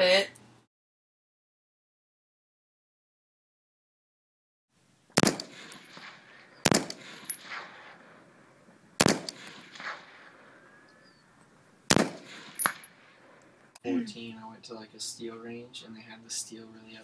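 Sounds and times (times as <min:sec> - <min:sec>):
gunshot echo: 0:05.2 - 0:08.4, 0:09.0 - 0:10.6, 0:11.9 - 0:13.4
rifle shots: 0:05.2 - 0:10.6, 0:11.9 - 0:13.6.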